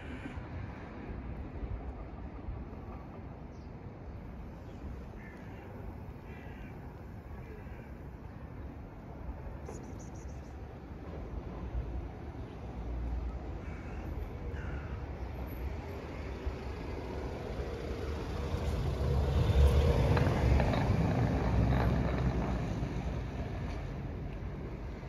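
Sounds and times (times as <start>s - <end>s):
vehicle passing by: 16.1s - 24.1s.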